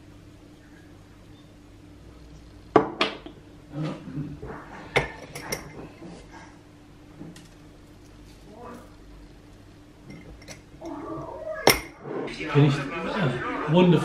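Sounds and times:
low steady hum: 0:00.0 - 0:14.0
dishes clinking and knocking: 0:02.7 - 0:03.4, 0:04.4 - 0:06.2, 0:10.0 - 0:11.0, 0:11.6 - 0:12.0.

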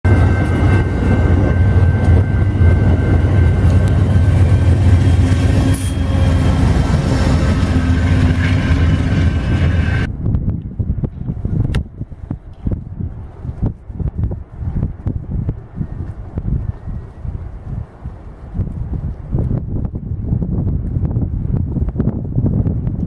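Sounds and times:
train rumbling past: 0:00.0 - 0:10.4
wind-like hush: 0:00.1 - 0:23.0.

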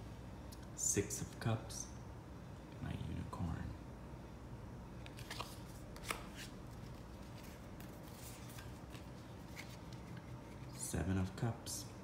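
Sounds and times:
cards sliding and tapping: 0:05.0 - 0:10.7.

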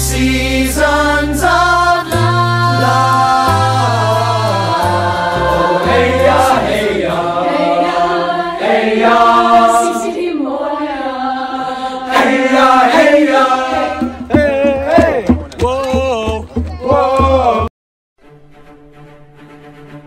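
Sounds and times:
choir singing: 0:00.0 - 0:15.3.

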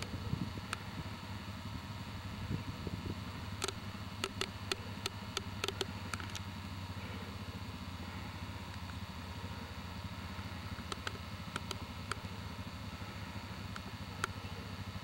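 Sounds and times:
vehicle engine idling: 0:00.0 - 0:15.0
sharp clicks: 0:00.7 - 0:00.9, 0:03.5 - 0:06.5, 0:10.7 - 0:12.3, 0:13.7 - 0:14.5.

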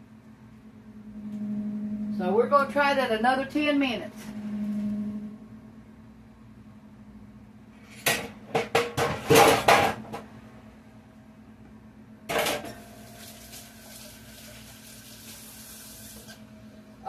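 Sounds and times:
dishes clattering on a counter: 0:08.1 - 0:10.0.

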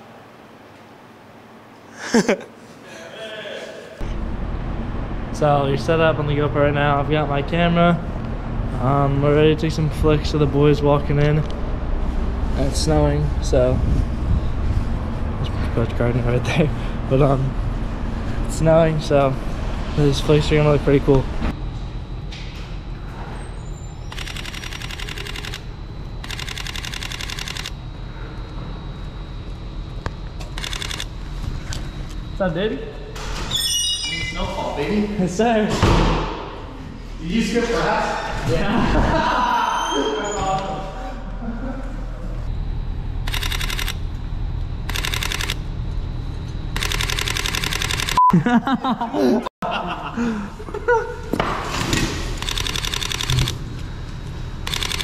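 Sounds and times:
steady low rumble: 0:04.0 - 0:22.2
camera shutter burst clicks: 0:24.1 - 0:25.6, 0:26.2 - 0:27.8, 0:43.3 - 0:44.0, 0:44.9 - 0:45.6, 0:46.8 - 0:48.2, 0:52.4 - 0:53.6, 0:54.7 - 0:55.0.

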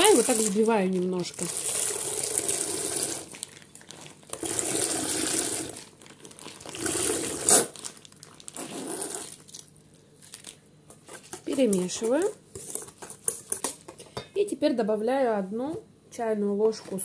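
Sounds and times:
whisking and sloshing in bowl: 0:00.0 - 0:07.6, 0:10.9 - 0:14.3.

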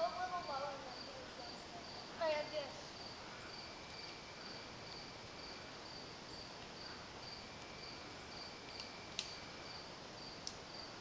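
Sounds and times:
insects chirping: 0:00.0 - 0:11.0
sharp clicks: 0:08.6 - 0:09.4.

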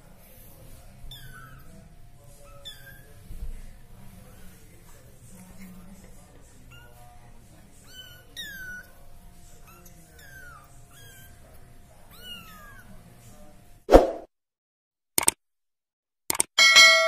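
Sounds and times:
kittens mewing: 0:00.9 - 0:03.3, 0:07.8 - 0:13.0.

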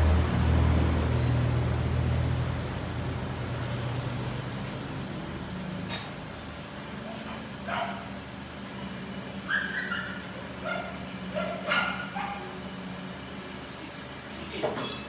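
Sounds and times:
high-pitched whining calls: 0:09.4 - 0:10.4.

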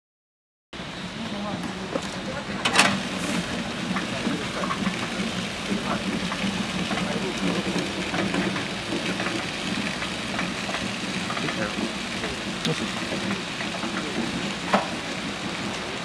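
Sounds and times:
road-marking machine hum: 0:00.8 - 0:16.0
machine hissing: 0:00.9 - 0:16.0.

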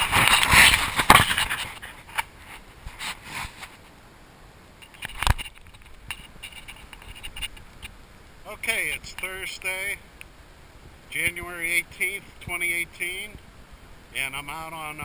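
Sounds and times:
rustling against microphone: 0:00.0 - 0:04.0, 0:04.8 - 0:08.0.

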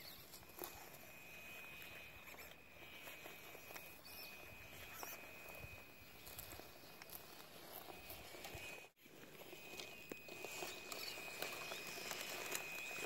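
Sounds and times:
steady high whine: 0:00.0 - 0:13.0
tyres rolling over dry grass: 0:00.0 - 0:13.0.

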